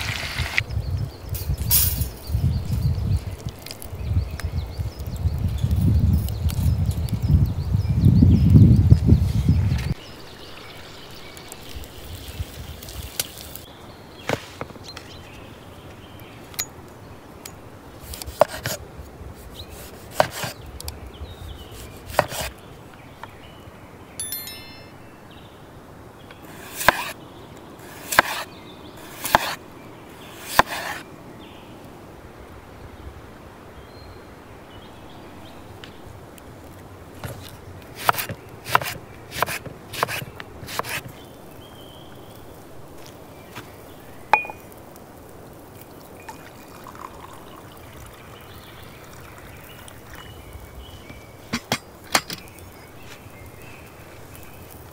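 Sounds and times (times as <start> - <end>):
heavy chopping strokes: 19.6 - 20.6, 21.8 - 22.5, 26.5 - 27.2, 27.8 - 29.6, 30.3 - 31.0, 37.2 - 41.1
knife tapping on wooden board: 44.4 - 44.6.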